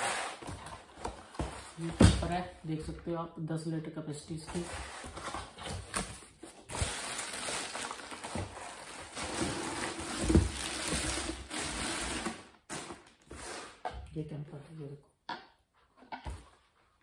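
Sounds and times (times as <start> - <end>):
plastic wrapping crinkling: 6.7 - 12.4.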